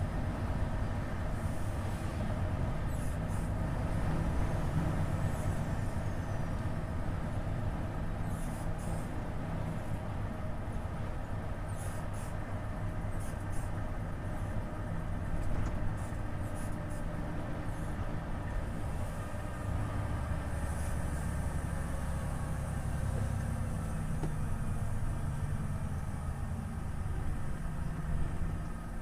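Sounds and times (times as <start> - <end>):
road noise: 0.0 - 29.0
truck diesel engine droning: 0.0 - 29.0.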